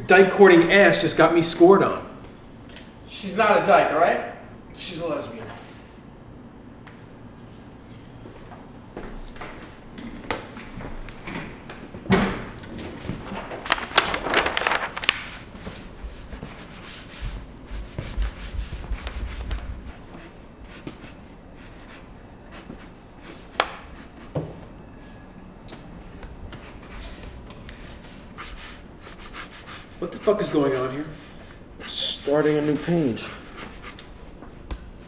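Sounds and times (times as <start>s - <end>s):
rustling and shuffling movement: 6.9s - 21.2s
pen scratching on paper: 17.7s - 24.4s.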